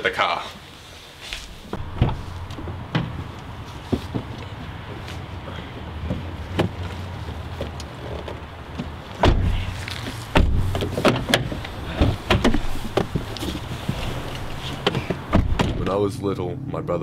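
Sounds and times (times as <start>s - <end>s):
car doors shutting: 1.7s - 5.0s, 8.2s - 16.0s.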